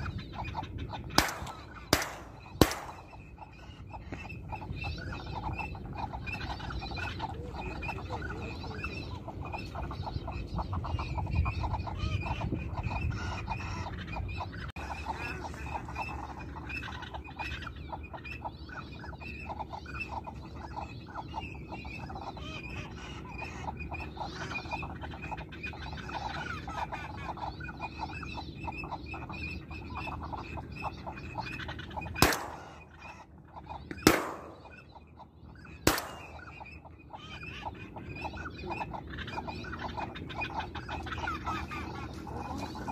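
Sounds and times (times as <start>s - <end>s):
ducks quacking: 0.0s - 42.9s
shotgun shots: 1.2s - 3.2s, 32.2s - 32.8s, 34.0s - 34.8s, 35.8s - 36.5s.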